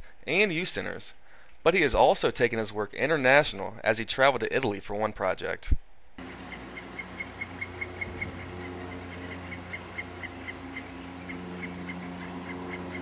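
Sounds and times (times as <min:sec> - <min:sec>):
low machine hum: 0:06.2 - 0:13.0.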